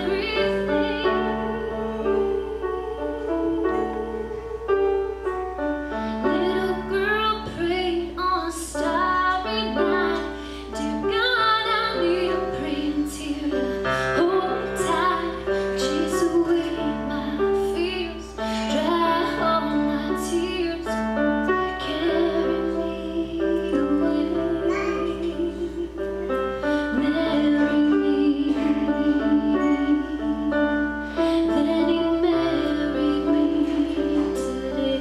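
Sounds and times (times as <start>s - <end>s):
woman singing a song: 0.0s - 5.5s, 6.2s - 35.0s.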